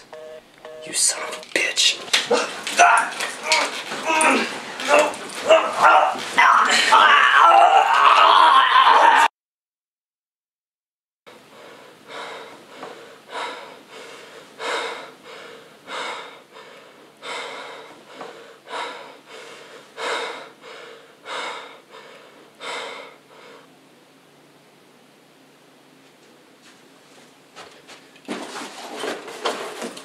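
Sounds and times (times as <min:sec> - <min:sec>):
man breathing heavily: 0:11.3 - 0:23.8.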